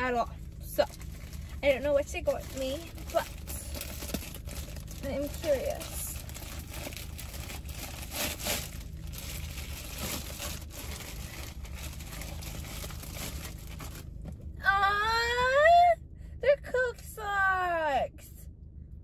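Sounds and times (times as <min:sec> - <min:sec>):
gift wrapping crinkling: 0:00.8 - 0:14.2.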